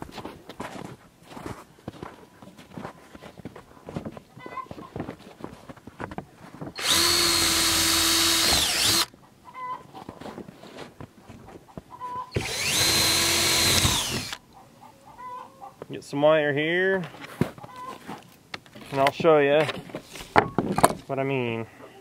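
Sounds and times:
cordless drill running: 6.8 - 9.1, 12.3 - 14.4.

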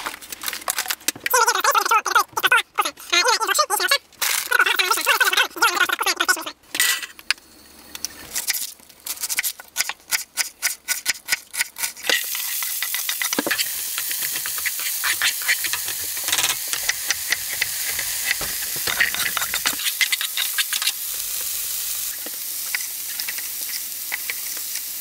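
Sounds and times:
onion sizzling in frying pan: 12.0 - 25.0.

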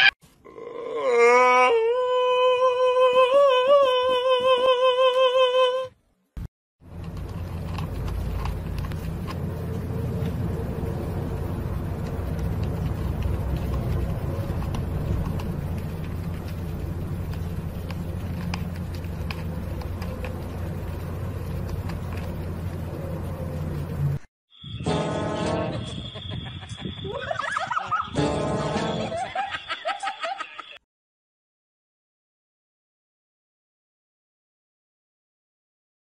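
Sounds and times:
low rumbling hum: 6.8 - 24.3.

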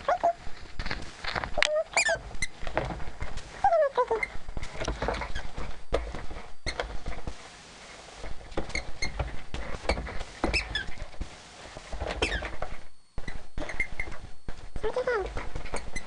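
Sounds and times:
toy squeaks: 1.7 - 2.5.

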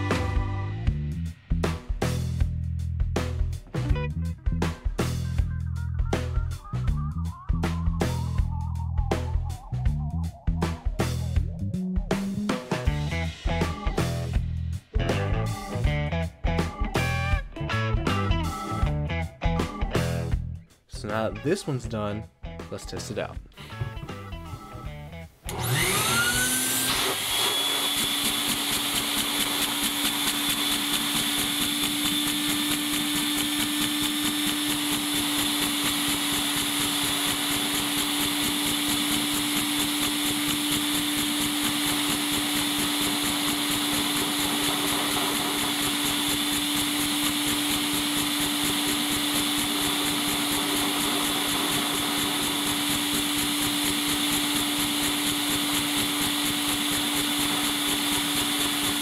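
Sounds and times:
vacuum cleaner motor whine: 25.5 - 59.0.

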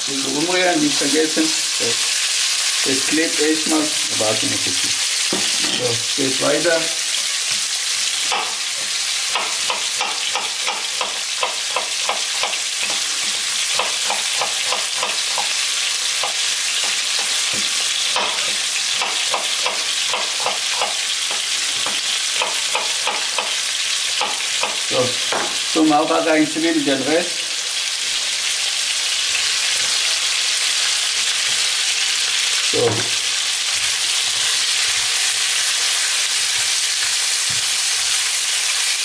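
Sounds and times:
meat and onions sizzling in oil: 0.0 - 39.0
knife chopping on wooden board: 13.7 - 15.5.

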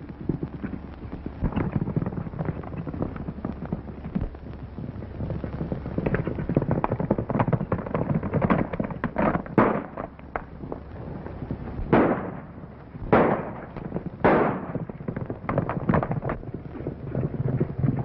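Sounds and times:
galloping hoofbeats: 0.0 - 11.9, 12.8 - 18.0
gunshots: 9.6 - 10.0, 11.9 - 14.8.

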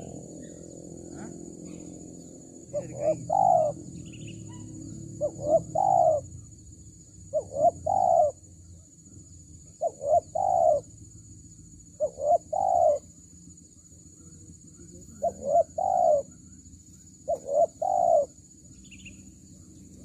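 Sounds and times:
dove cooing: 0.0 - 6.6, 7.3 - 8.5, 9.6 - 10.9, 12.0 - 13.1, 14.8 - 16.6, 17.2 - 18.4
faint high-pitched hum: 0.0 - 20.0.

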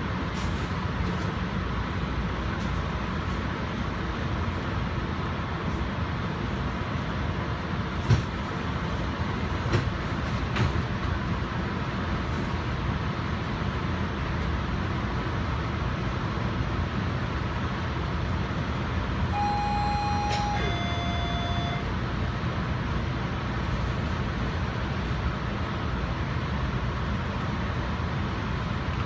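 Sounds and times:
train wheels on rails: 0.0 - 29.0.

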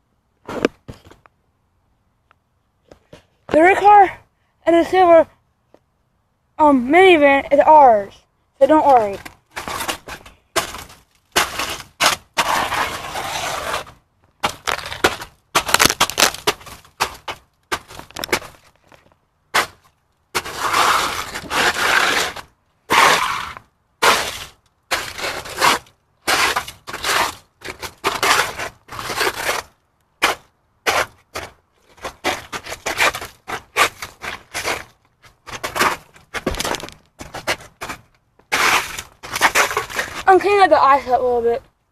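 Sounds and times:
ice scraping and cracking: 8.6 - 41.5.

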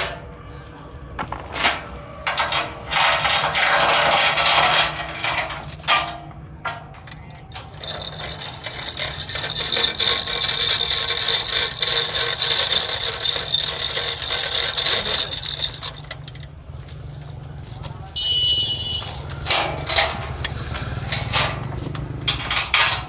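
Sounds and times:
steel chain rattling through hoist: 2.3 - 23.0
metal knocks: 19.4 - 23.0.

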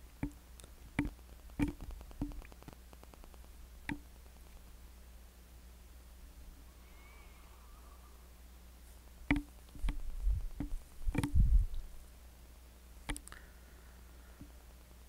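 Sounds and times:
low electrical hum: 0.0 - 15.0
sharp click: 9.3 - 10.0.

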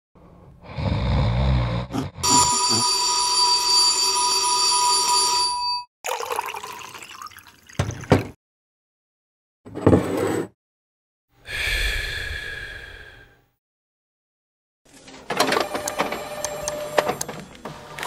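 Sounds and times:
bell ringing: 2.2 - 5.9.

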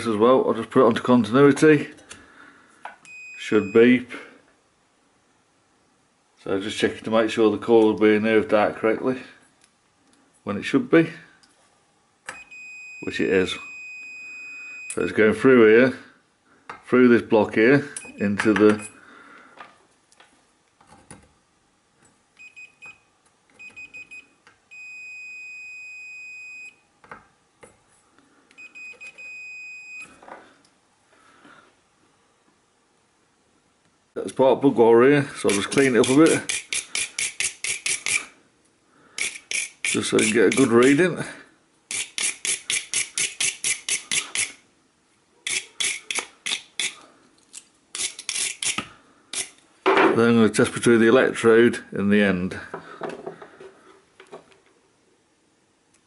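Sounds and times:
multimeter continuity beeps: 12.3 - 15.0, 22.4 - 23.0, 23.6 - 26.8, 28.5 - 30.1
file scraping metal: 35.4 - 38.3, 39.2 - 41.0, 41.9 - 44.6, 45.4 - 47.0, 47.9 - 49.6.

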